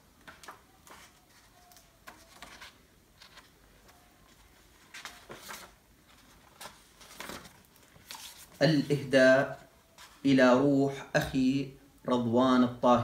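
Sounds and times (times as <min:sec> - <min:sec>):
book pages turning: 0:00.2 - 0:09.1.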